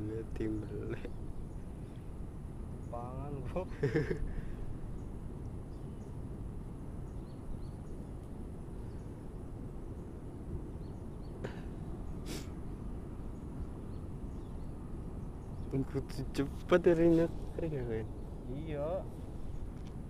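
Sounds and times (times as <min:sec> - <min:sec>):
wind and microphone handling: 0:00.0 - 0:20.0.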